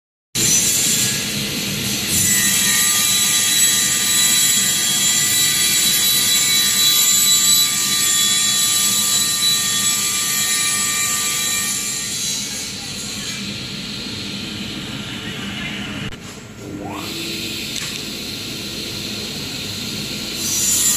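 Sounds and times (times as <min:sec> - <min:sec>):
circular saw blade whining: 0:02.1 - 0:13.5.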